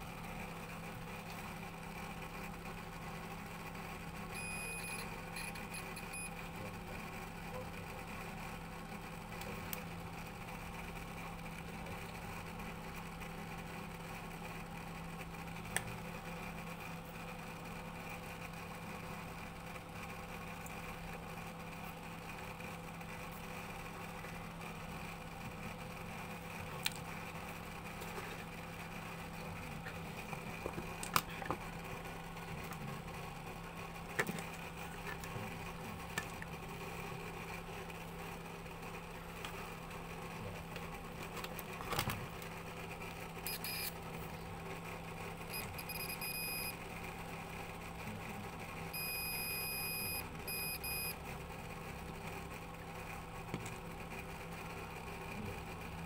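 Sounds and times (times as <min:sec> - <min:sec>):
steady low hum: 0:00.0 - 0:56.0
electronic beeps: 0:43.5 - 0:43.9, 0:45.5 - 0:46.7, 0:49.0 - 0:51.2.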